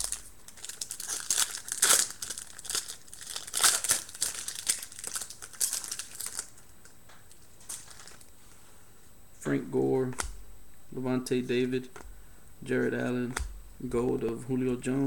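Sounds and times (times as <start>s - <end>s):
card pack wrapper crinkling: 0.0s - 8.3s.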